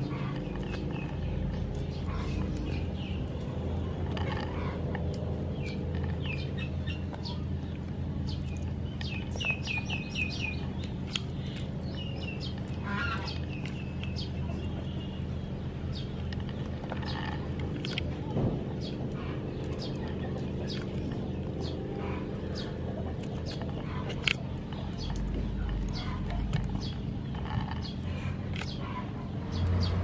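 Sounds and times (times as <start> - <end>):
birds chirping: 0.0 - 30.0
steady low hum: 0.0 - 30.0.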